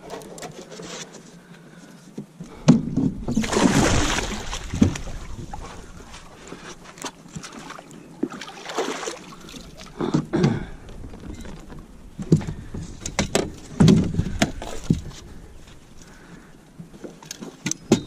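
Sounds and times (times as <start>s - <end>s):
knocks and thumps on boat: 2.6s - 9.2s, 9.8s - 15.3s.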